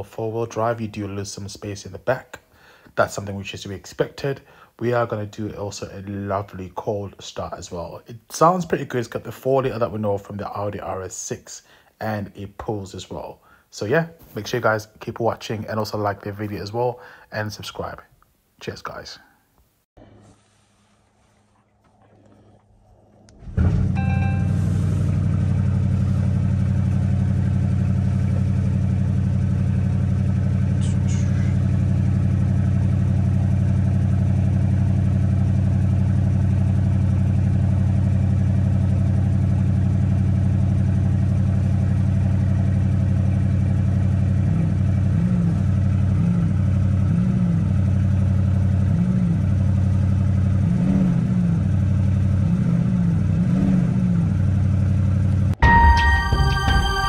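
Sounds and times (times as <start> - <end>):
car engine idling: 21.7 - 57.0
engine throttle blips: 22.2 - 57.0.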